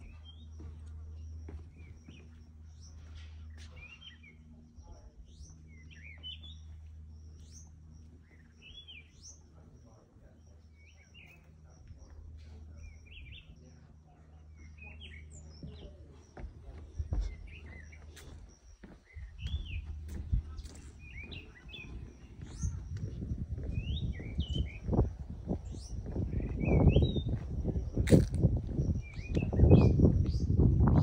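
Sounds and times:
footsteps on wooden deck: 0.0s - 4.2s, 4.8s - 8.9s, 14.6s - 30.8s
low steady hum: 0.0s - 31.0s
small birds chirping: 0.0s - 31.0s.

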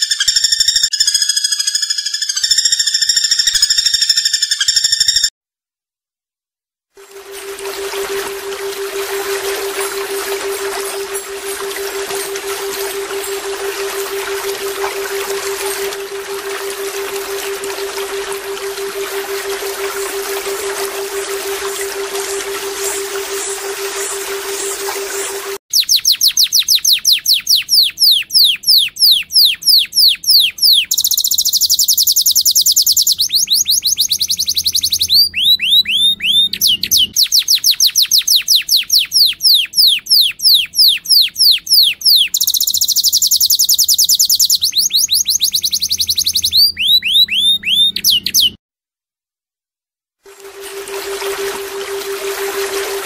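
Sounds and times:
buzzing bird trill: 0.0s - 5.3s, 7.0s - 48.6s, 50.3s - 53.0s
high downward-slurred bird whistles: 0.0s - 5.3s, 7.5s - 48.6s.

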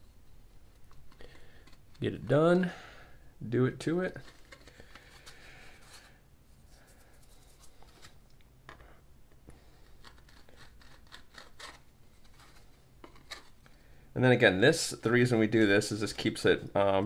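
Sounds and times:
metal tool scraping plastic: 9.8s - 13.6s.

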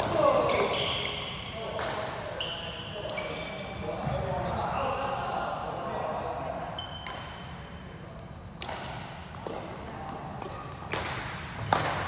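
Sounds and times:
shoes squeaking on court: 2.4s - 4.2s, 8.0s - 8.7s
rackets striking shuttlecock: 8.6s - 12.0s.

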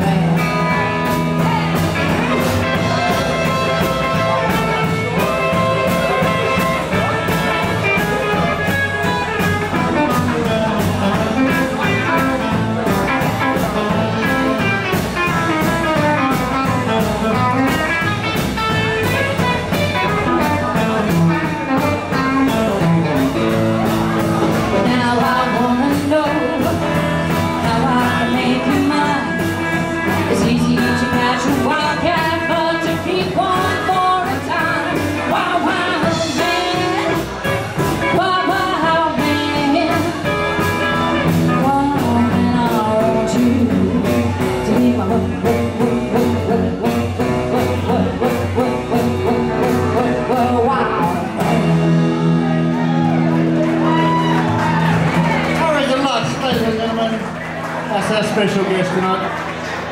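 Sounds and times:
person singing: 0.0s - 53.2s
rock and roll band playing: 0.0s - 59.9s.

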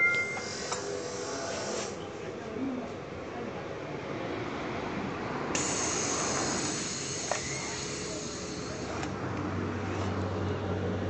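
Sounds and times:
compressed air hissing: 0.2s - 2.0s, 5.6s - 9.0s.

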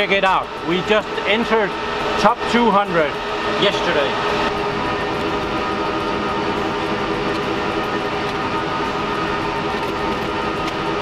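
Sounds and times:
server cooling fans whirring: 0.0s - 11.0s.

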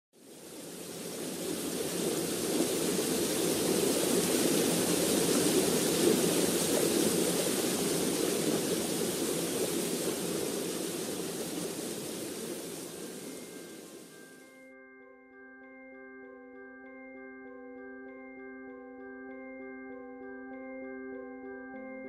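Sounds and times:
waterfall rushing: 0.2s - 14.2s.

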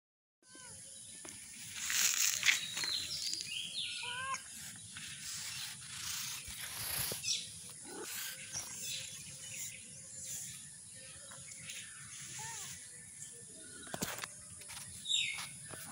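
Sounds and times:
kittens mewing: 3.9s - 4.6s
high-pitched insect drone: 11.7s - 12.9s.

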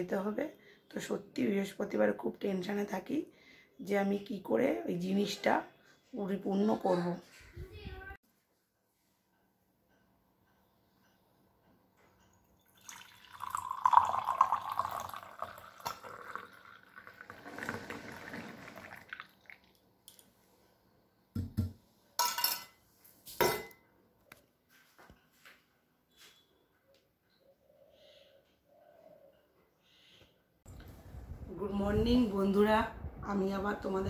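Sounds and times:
tea pouring into a cup: 12.6s - 20.3s.

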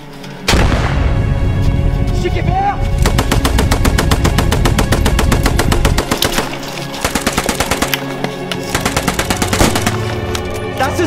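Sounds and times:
automatic machine-gun fire: 3.0s - 6.4s, 7.0s - 8.0s, 8.8s - 10.0s.

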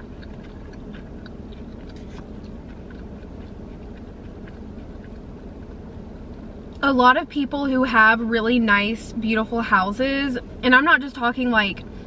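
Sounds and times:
wet mouth clicks: 0.0s - 5.3s
close-up chewing: 0.0s - 6.8s
steady low hum: 0.0s - 12.0s.

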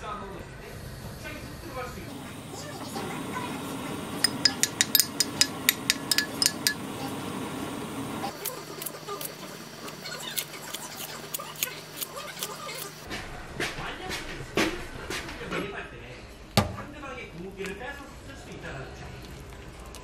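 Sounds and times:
light tableware clicks: 4.2s - 6.8s
sharp ringing tableware clinks: 4.2s - 6.8s.

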